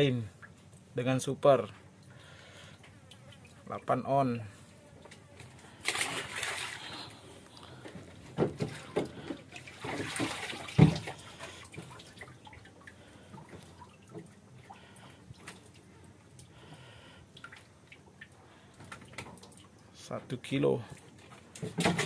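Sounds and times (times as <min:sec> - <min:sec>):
water dripping: 0:01.7 - 0:02.4, 0:08.7 - 0:19.9
water splashing: 0:05.8 - 0:07.4, 0:08.5 - 0:15.9.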